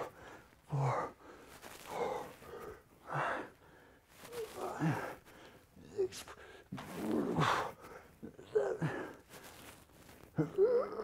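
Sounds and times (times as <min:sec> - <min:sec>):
man breathing hard: 0:00.0 - 0:05.6
man grunting: 0:10.4 - 0:11.0.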